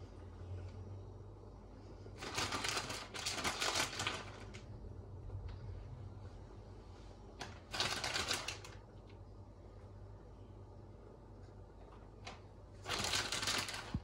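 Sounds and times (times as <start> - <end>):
cheese packet crinkling: 2.2 - 4.7, 7.4 - 8.8, 12.8 - 14.0.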